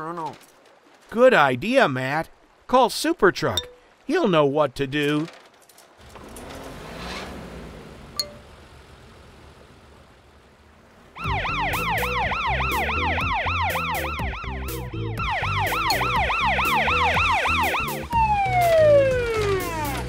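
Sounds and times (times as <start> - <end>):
cartoon police siren wailing: 11.2 - 20.0
background music with a beat: 11.3 - 20.0.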